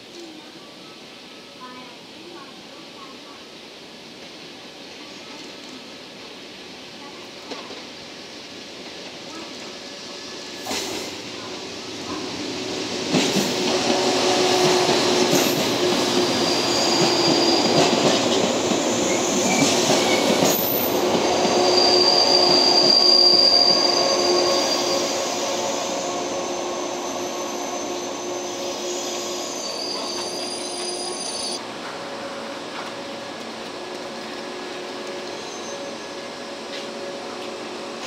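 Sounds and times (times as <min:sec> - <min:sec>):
train wheels on rails: 0:03.7 - 0:38.0
high wheel squeal: 0:15.4 - 0:17.8, 0:19.0 - 0:31.6, 0:35.2 - 0:36.5.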